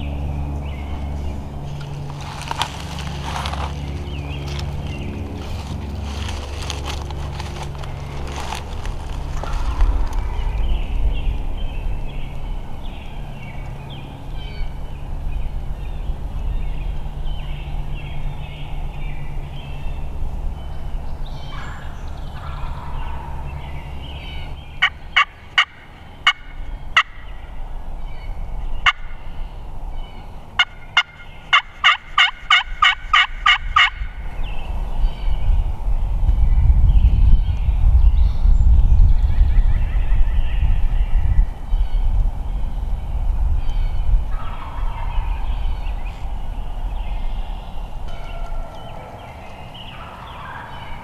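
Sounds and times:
low steady rumble: 0:00.0 - 0:51.0
turkey yelps: 0:30.6 - 0:34.0, 0:49.9 - 0:51.0.

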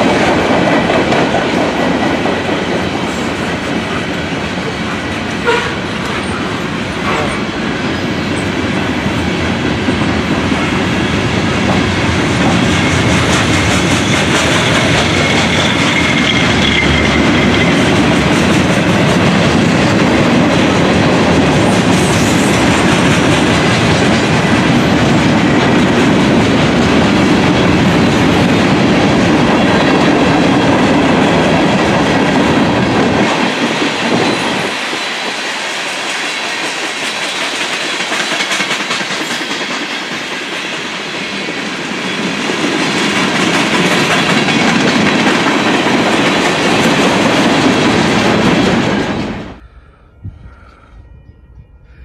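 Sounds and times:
low rumble of train: 0:00.0 - 0:52.0
train wheels clattering over rail joints: 0:09.4 - 0:35.3, 0:36.0 - 0:49.4.

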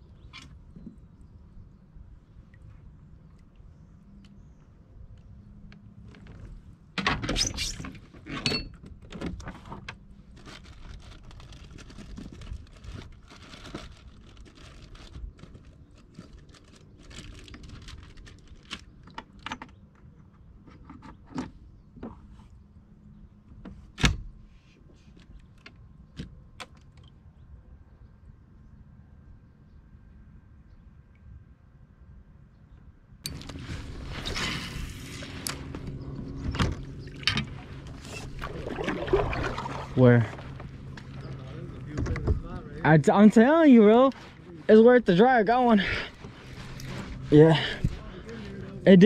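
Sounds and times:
fishing gear clicking and rattling: 0:07.2 - 0:19.9.

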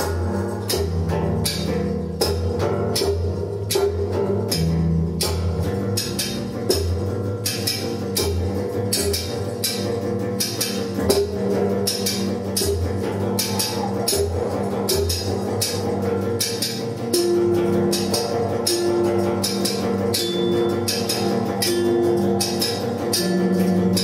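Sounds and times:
sharp percussive hits: 0:00.0 - 0:24.0
low drone: 0:11.0 - 0:24.0.

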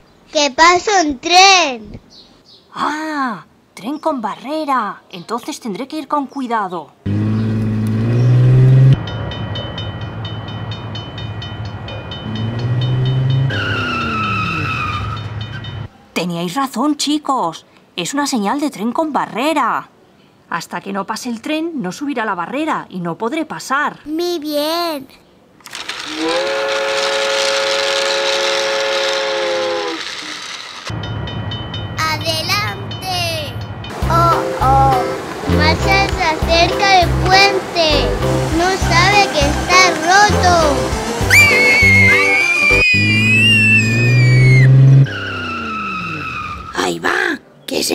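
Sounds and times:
rumble of passing train: 0:07.7 - 0:16.0, 0:26.2 - 0:41.3
crossing bell ringing rapidly: 0:09.0 - 0:15.9, 0:30.1 - 0:35.0
train horn: 0:26.1 - 0:30.2
children's music with a beat: 0:33.9 - 0:42.8
high tone falling in pitch: 0:40.7 - 0:46.4.

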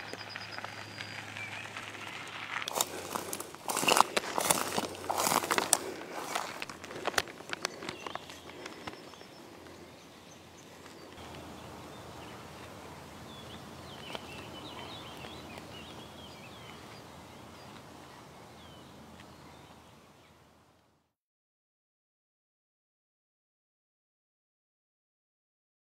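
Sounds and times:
outdoor hush: 0:00.0 - 0:19.8
small birds chirping: 0:00.0 - 0:20.6.

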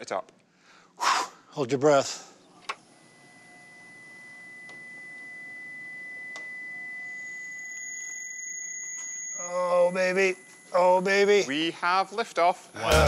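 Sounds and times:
second higher electronic tone: 0:03.0 - 0:11.4
high electronic tone: 0:03.0 - 0:11.7.

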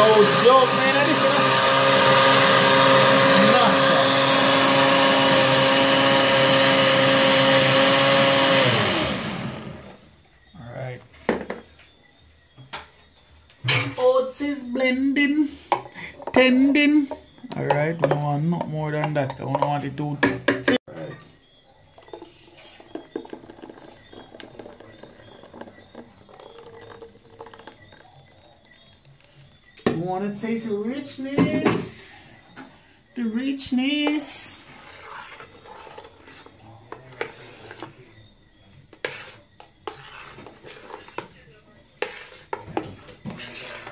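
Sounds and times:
blender motor whine: 0:00.0 - 0:10.0
thick liquid pouring and splashing: 0:22.0 - 0:29.2.

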